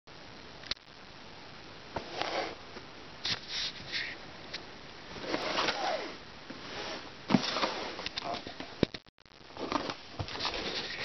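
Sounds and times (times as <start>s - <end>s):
cardboard parcel rustling scrapes: 5.1s - 8.0s, 9.5s - 11.0s.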